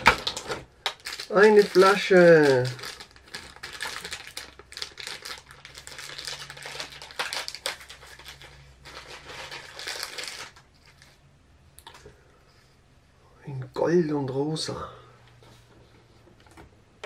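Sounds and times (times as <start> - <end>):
plastic bag crinkling: 0.0 - 11.2.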